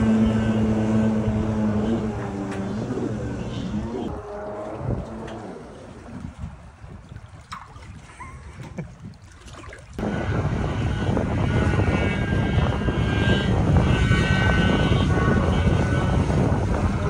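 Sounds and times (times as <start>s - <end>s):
jet ski engine running: 0.0s - 6.8s, 10.0s - 17.0s
water: 0.0s - 17.0s
wind: 0.0s - 17.0s.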